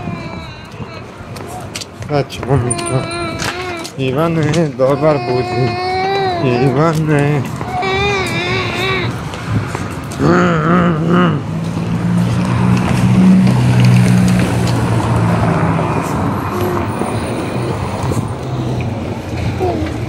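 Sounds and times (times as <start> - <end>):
street noise: 0.0 - 20.0
wavering voice: 2.7 - 3.9, 10.2 - 11.5
vehicle engine passing: 7.4 - 20.0.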